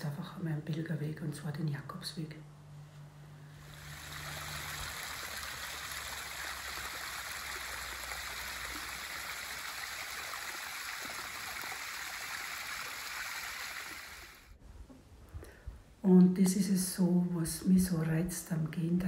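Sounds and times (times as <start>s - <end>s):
water trickling: 3.6s - 14.6s.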